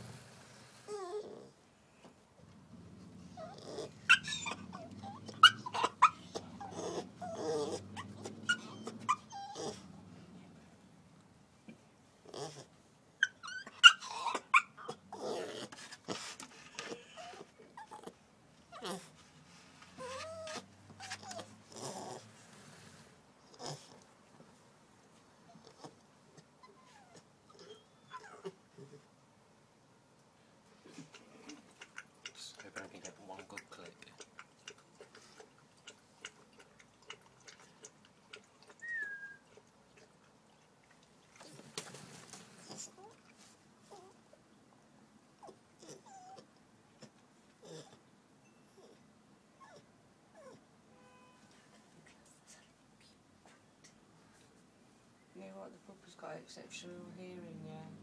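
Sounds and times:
puppy crying: 3.3 - 9.9, 13.2 - 15.7, 20.0 - 22.2, 26.6 - 28.6, 38.7 - 39.6.

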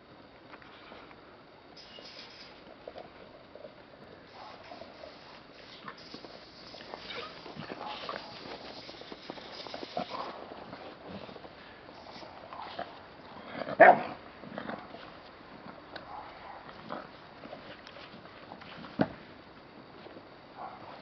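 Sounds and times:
dog barking: 4.3 - 4.9, 7.7 - 8.5, 13.8 - 14.2, 16.1 - 16.7, 20.6 - 21.0
dogs scuffling: 4.4 - 13.1.

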